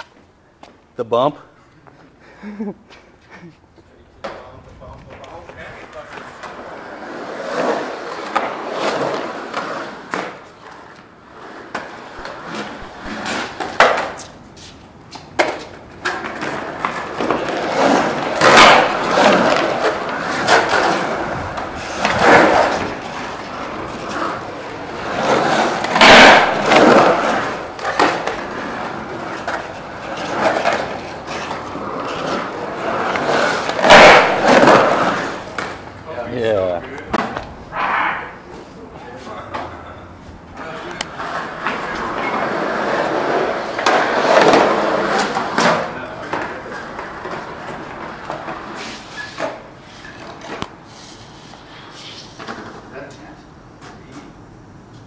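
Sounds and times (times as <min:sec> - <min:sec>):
skateboard wheels rolling on concrete: 0:00.0 - 0:55.0
skateboard clacks: 0:04.2 - 0:36.0, 0:40.6 - 0:50.9.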